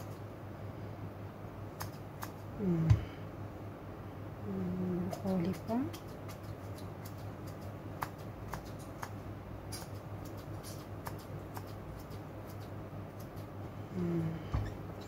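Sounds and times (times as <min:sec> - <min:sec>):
steady low hum: 0:00.0 - 0:15.0
scissors snipping broccoli: 0:05.3 - 0:13.5.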